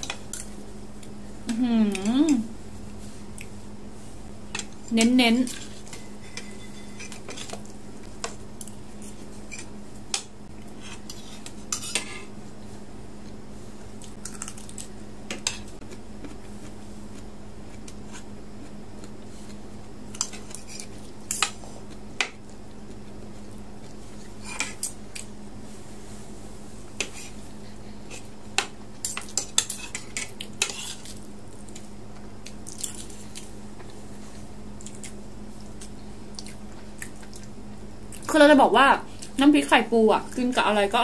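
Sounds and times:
steady low hum: 0.0s - 41.0s
cutlery scraping a ceramic plate: 5.6s - 7.6s, 10.8s - 12.3s, 29.0s - 31.1s.

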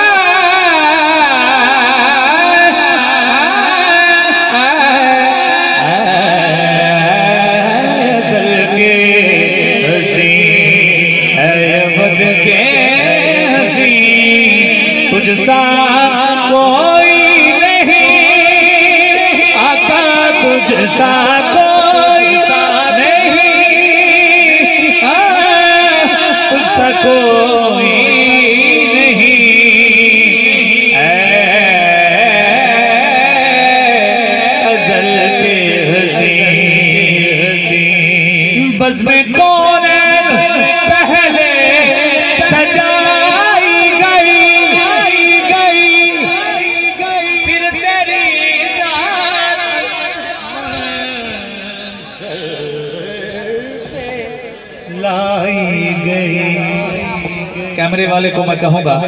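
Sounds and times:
man singing over loudspeaker: 0.0s - 59.0s.

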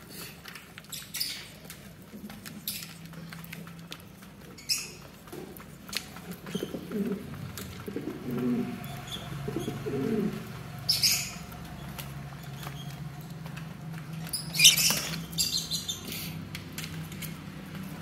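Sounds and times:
pigeons cooing: 6.4s - 11.4s
high-pitched bird call: 14.6s - 15.6s.

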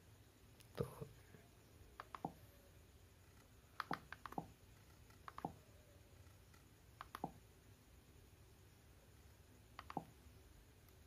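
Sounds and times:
remote control clicks: 2.0s - 2.4s, 7.0s - 7.4s, 9.8s - 10.1s.

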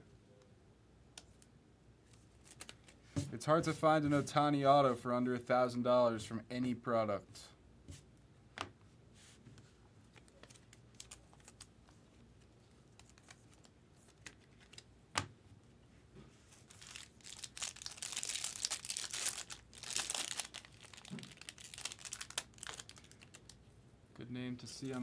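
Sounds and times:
foil wrapper crinkling and tearing: 10.1s - 11.7s, 16.6s - 23.6s.

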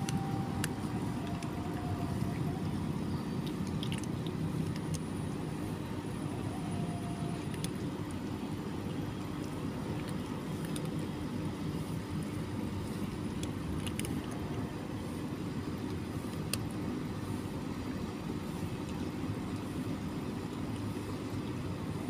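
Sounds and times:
faint hum: 0.0s - 22.0s
low background rumble: 0.0s - 22.0s.

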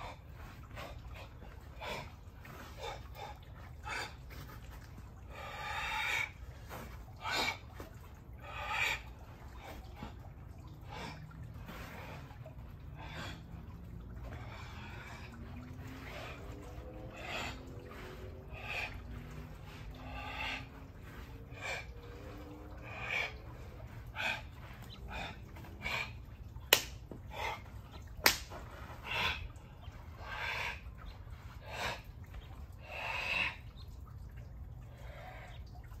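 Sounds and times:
sharp smacks: 26.7s - 27.1s, 28.2s - 28.6s.

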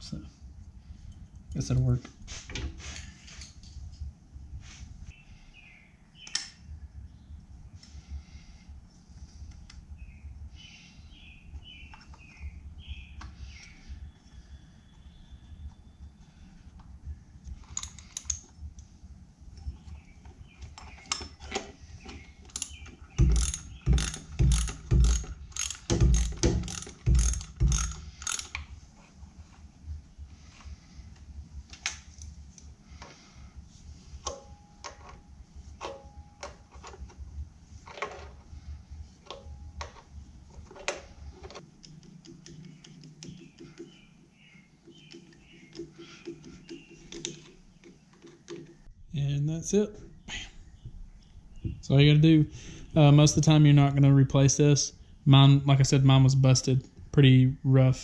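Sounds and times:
hand ratchet clicking: 22.5s - 28.6s.

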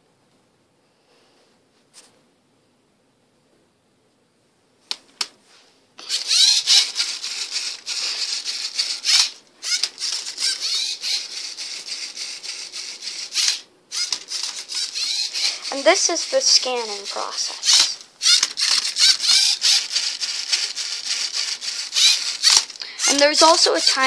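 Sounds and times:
sharp clicks: 6.0s - 23.3s
servo motors whirring: 6.0s - 24.0s.

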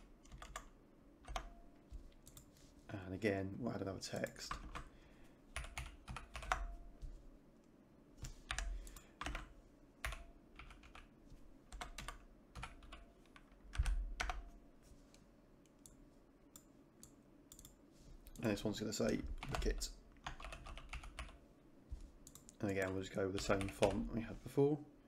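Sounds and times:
computer keyboard typing: 0.0s - 2.5s, 4.2s - 4.9s, 5.5s - 6.8s, 8.2s - 11.1s, 11.7s - 14.5s, 17.5s - 21.4s, 22.2s - 24.0s.

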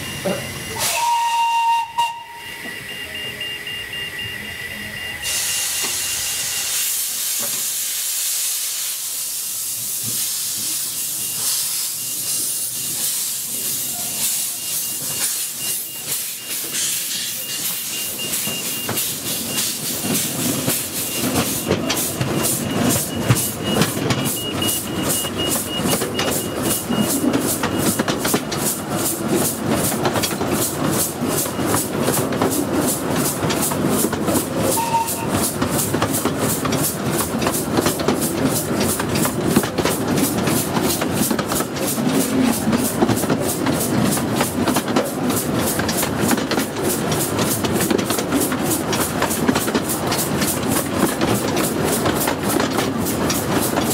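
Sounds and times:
steam locomotive exhaust beats: 0.0s - 53.9s
steam hissing: 4.7s - 23.6s
wheels rattling on track: 9.8s - 53.9s.

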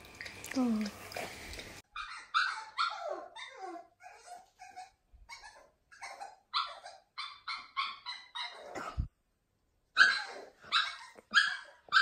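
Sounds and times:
puppy yelping and whining: 1.8s - 9.1s, 9.9s - 12.0s.

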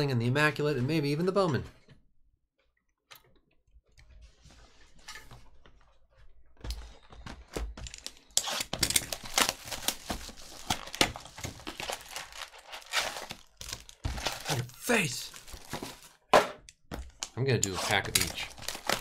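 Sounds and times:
plastic shrink wrap crinkling: 8.4s - 16.2s, 17.8s - 19.0s.

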